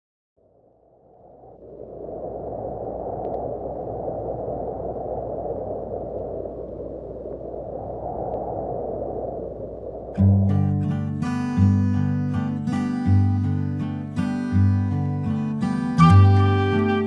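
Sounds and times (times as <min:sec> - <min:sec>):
faint clicks: 0:03.2 - 0:03.5.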